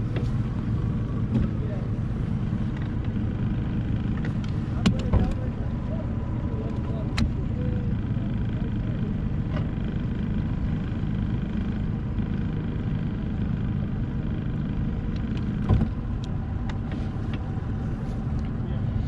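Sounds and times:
outboard motor idling: 0.0s - 19.0s
short thump: 15.6s - 16.0s.

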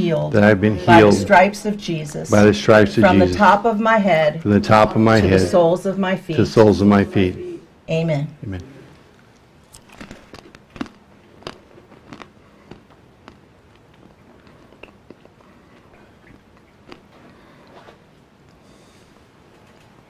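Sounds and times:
person chewing crunchy bread: 9.6s - 18.6s.

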